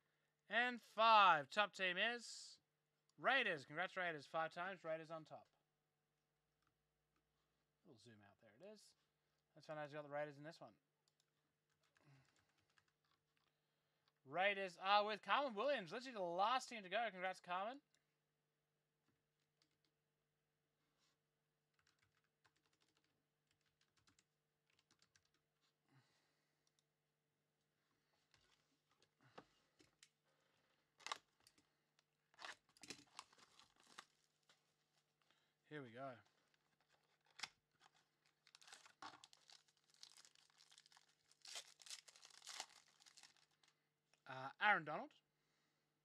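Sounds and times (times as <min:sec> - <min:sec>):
typing on computer keyboard: 0:21.8 - 0:25.4
foil pack crinkling: 0:32.4 - 0:34.5, 0:36.5 - 0:43.8.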